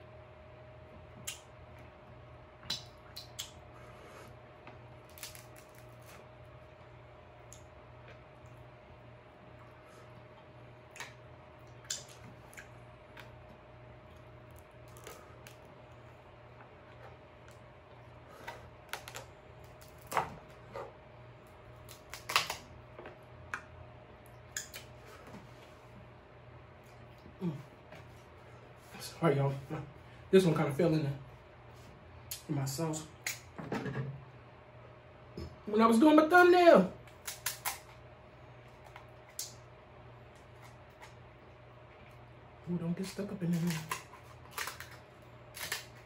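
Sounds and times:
crab shell cracking: 5.0 - 6.1, 18.8 - 20.2, 21.8 - 22.7, 37.1 - 38.0, 43.5 - 46.0.

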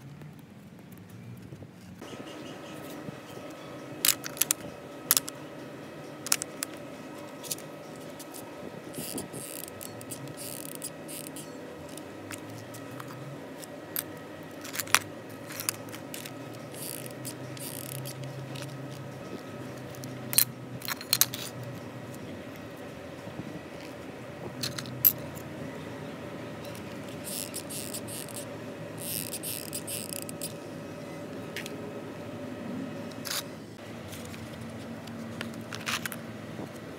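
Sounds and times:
plastic cell holder handled: 4.1 - 5.4, 6.2 - 8.4, 9.0 - 21.6.

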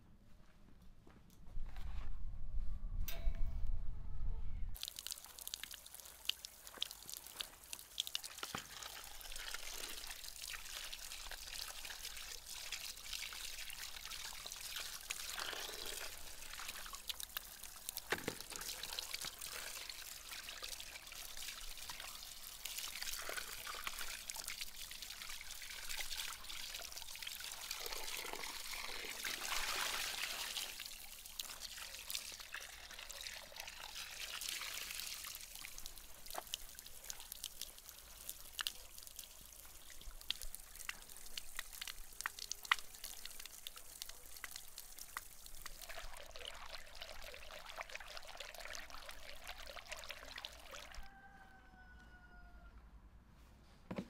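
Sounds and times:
water pouring from spout: 4.8 - 51.1
water splashing into plastic basin: 14.0 - 37.6.

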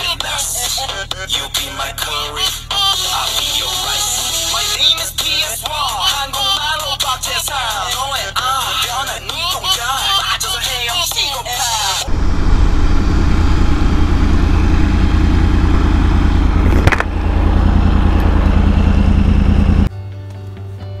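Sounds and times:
music: 0.0 - 12.0, 19.9 - 21.0
motorcycle engine: 12.0 - 19.9
wind rumble on microphone: 12.0 - 19.9.

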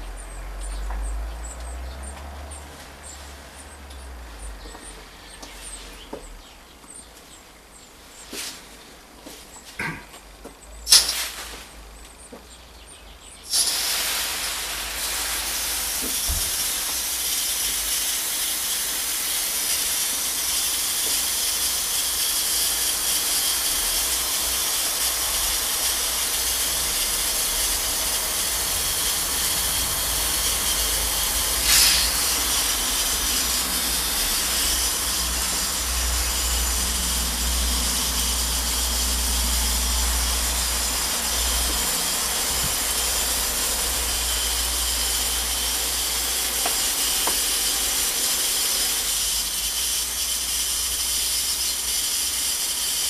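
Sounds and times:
hose nozzle spraying water: 10.9 - 11.6, 13.5 - 53.0.

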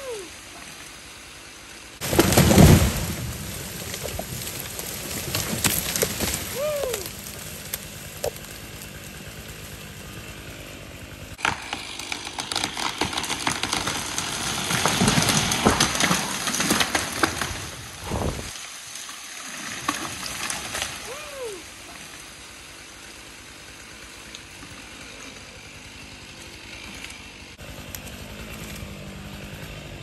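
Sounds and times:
tree crashing through branches: 2.0 - 10.2, 11.3 - 22.2
chainsaw running: 2.0 - 18.5, 19.8 - 30.0.

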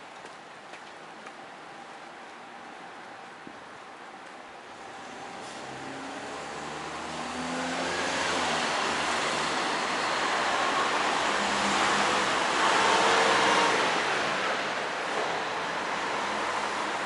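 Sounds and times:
road traffic passing: 4.7 - 17.0.

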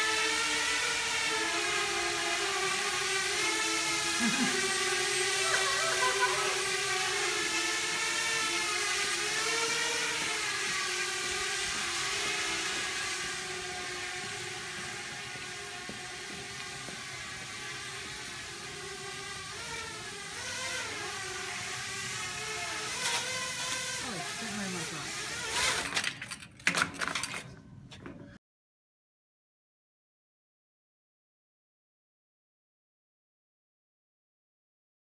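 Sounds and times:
drone propellers buzzing whine: 0.0 - 26.0.

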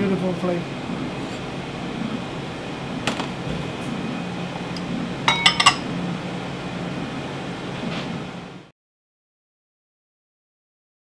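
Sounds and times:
steady low hum: 0.0 - 8.7
dishes clinking: 4.7 - 5.9.

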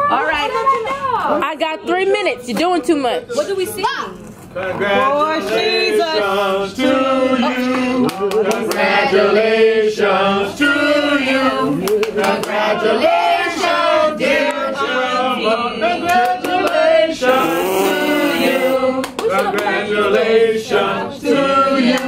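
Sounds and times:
group of people singing: 4.6 - 22.0.

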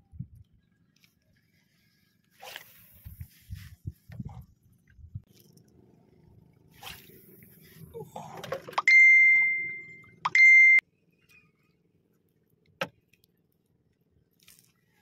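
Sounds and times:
faint low rumble: 2.7 - 8.4
high-pitched ringing tones: 8.8 - 10.8.

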